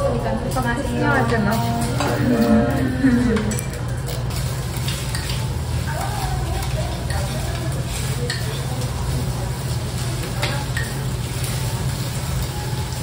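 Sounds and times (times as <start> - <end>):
food sizzling in stone bowl: 3.8 - 13.0.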